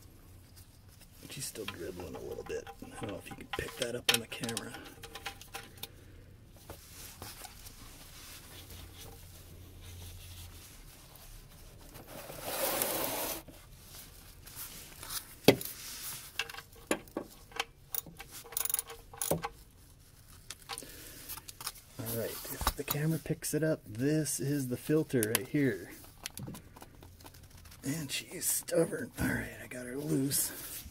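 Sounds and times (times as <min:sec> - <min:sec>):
light clicks and taps: 0:25.1 - 0:27.4.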